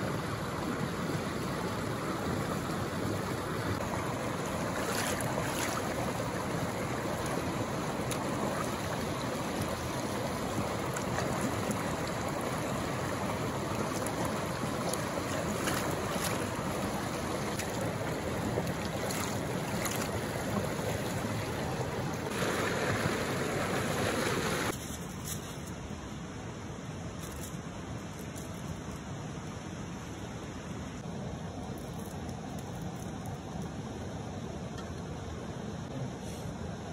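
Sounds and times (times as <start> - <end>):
river water rushing over rocks: 0.0 - 24.8
hands splashing water: 4.8 - 6.0, 14.9 - 16.7.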